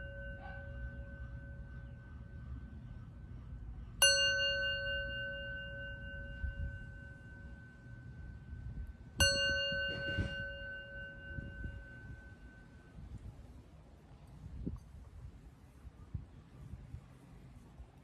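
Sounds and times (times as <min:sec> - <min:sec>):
singing bowl ringing: 0:00.0 - 0:13.2.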